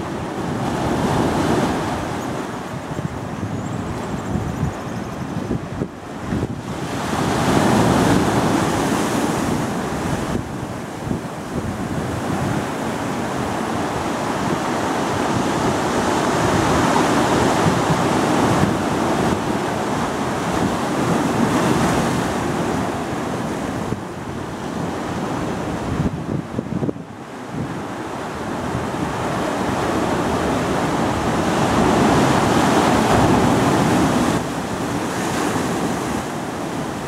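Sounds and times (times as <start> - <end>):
ocean surf over rocks: 0.0 - 37.0
wind buffeting microphone: 0.0 - 37.0.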